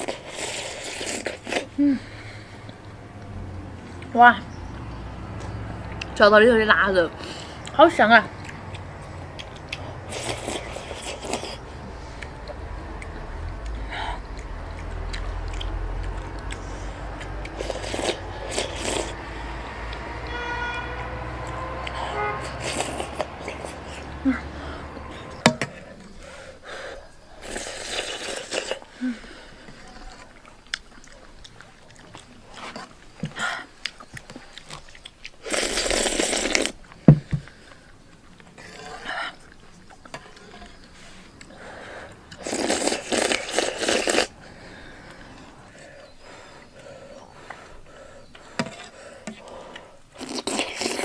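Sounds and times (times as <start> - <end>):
person slurping porridge: 0.0 - 2.7, 9.6 - 12.3, 16.6 - 19.3, 21.9 - 26.2, 27.4 - 30.4, 34.4 - 36.8, 38.6 - 44.6, 48.5 - 51.0
chewing: 0.0 - 4.1, 7.2 - 20.1, 21.4 - 51.0.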